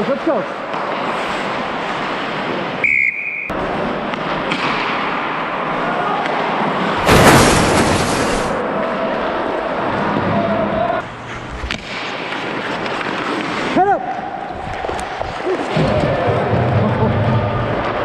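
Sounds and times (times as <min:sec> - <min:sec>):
skate blades scraping ice: 0:11.2 - 0:13.9.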